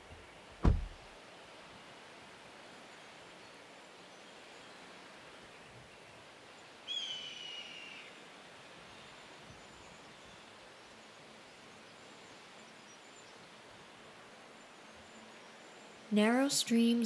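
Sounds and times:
faint outdoor hiss: 0:00.0 - 0:17.0
whistled bird call: 0:06.9 - 0:08.1.

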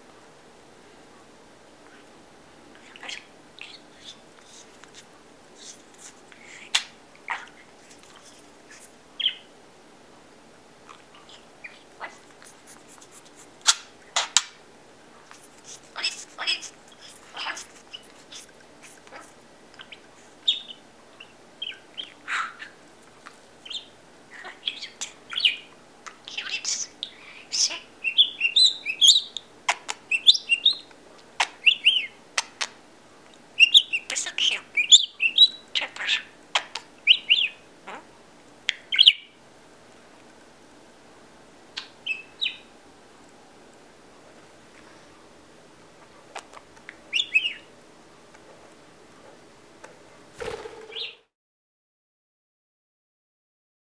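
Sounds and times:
budgerigar chirping: 0:09.2 - 0:09.5, 0:19.8 - 0:22.8, 0:26.3 - 0:30.9, 0:33.6 - 0:38.0, 0:47.1 - 0:47.7, 0:50.6 - 0:51.2.

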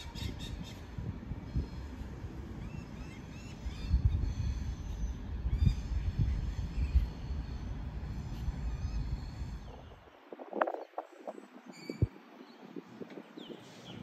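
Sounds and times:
birds chirping: 0:02.6 - 0:14.0.

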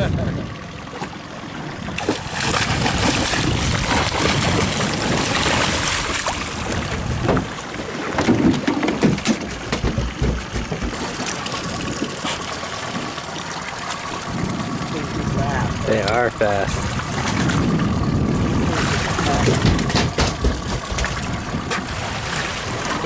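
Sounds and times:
wind buffeting microphone: 0:00.0 - 0:00.7, 0:01.7 - 0:08.2, 0:14.2 - 0:23.0
water washing: 0:00.0 - 0:23.0.

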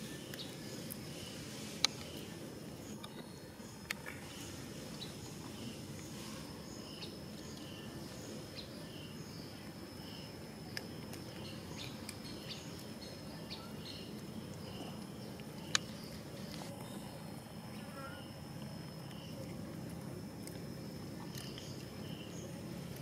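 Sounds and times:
low background noise: 0:00.0 - 0:23.0
faint high-pitched drone: 0:16.6 - 0:19.6.

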